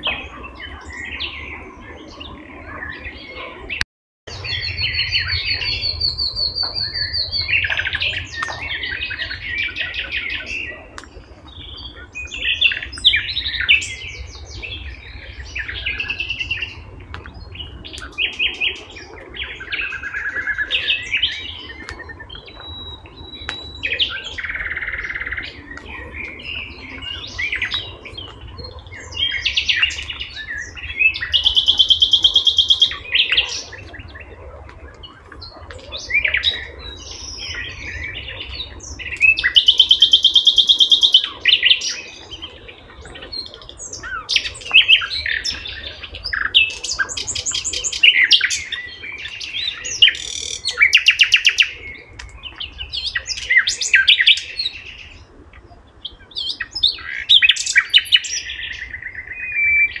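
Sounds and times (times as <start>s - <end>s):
bird chirps and whistles: 39.3s - 41.9s.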